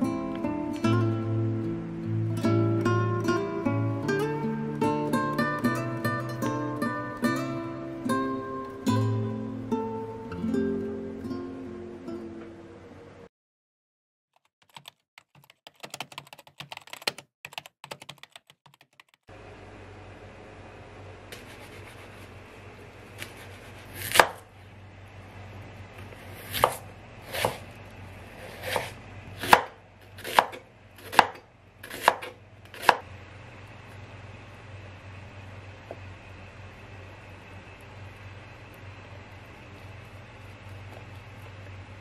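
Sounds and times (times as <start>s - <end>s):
steady low hum: 0.0s - 13.3s, 19.3s - 42.0s
knife chopping on cutting board: 23.2s - 24.5s, 26.4s - 27.6s, 28.4s - 33.0s.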